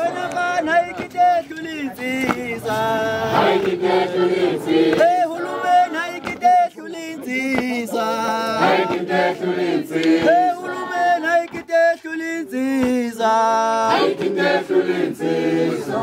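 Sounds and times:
men chanting in chorus: 0.0 - 16.0.

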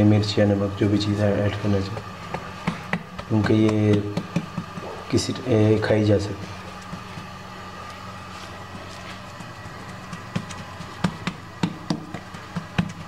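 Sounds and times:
taps and clicks handling food: 1.9 - 5.2, 6.6 - 8.0, 9.0 - 13.0.

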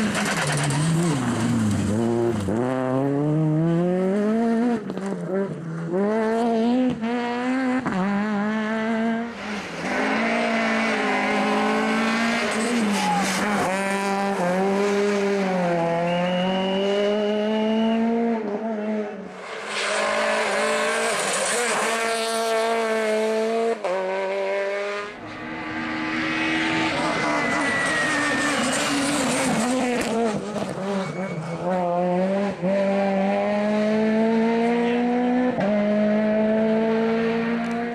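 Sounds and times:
rally car engine revving: 0.0 - 37.9
tyre squeal: 10.9 - 13.7, 25.8 - 31.8.

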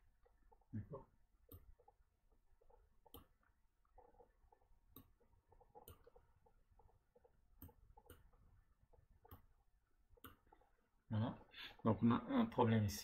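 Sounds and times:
mouse clicks: 2.7 - 3.4, 4.9 - 6.2, 7.6 - 8.4.

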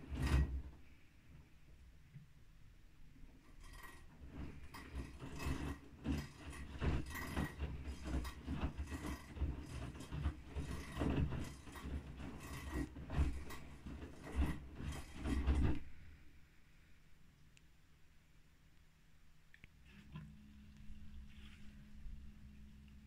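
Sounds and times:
laundry sloshing in washing machine: 0.0 - 1.0, 3.4 - 16.0
washing machine rumble: 0.0 - 1.8, 3.1 - 16.2, 19.8 - 23.0.

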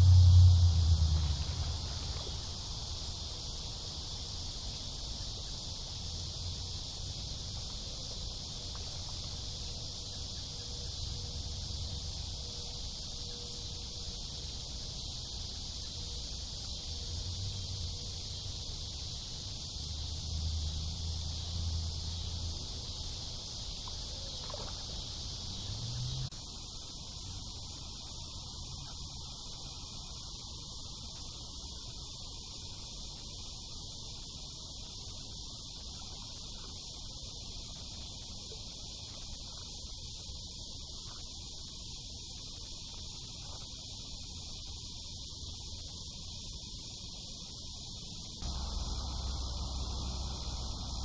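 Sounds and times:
low rumble: 0.0 - 2.6, 48.4 - 51.0
insect chorus drone: 0.0 - 51.0.

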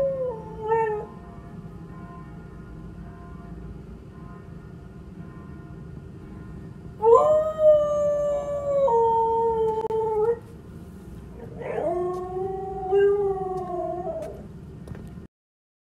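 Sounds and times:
dog howling: 7.0 - 10.4, 11.4 - 14.4.

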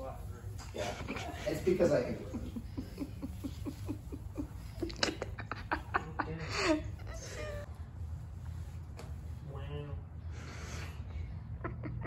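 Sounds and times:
person laughing: 2.2 - 7.7.

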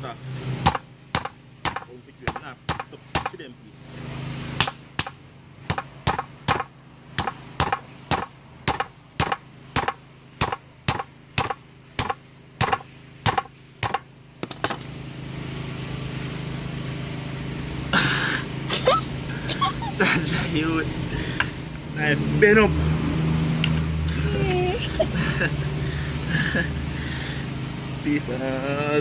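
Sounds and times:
cleaver chopping fish on board: 0.7 - 3.4, 4.6 - 14.0.

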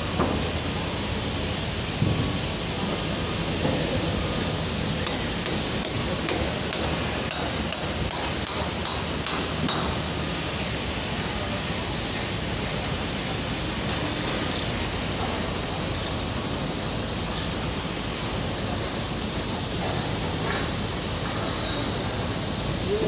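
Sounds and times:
steady rushing background noise: 0.0 - 23.0.

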